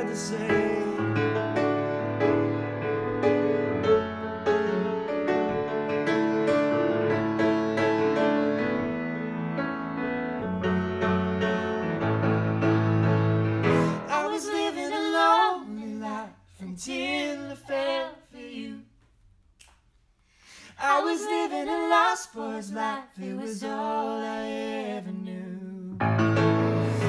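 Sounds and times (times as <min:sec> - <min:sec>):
man and woman singing duet: 0:00.0 - 0:01.2, 0:13.7 - 0:18.9, 0:20.6 - 0:26.0
grand piano: 0:00.0 - 0:16.2, 0:25.6 - 0:27.0.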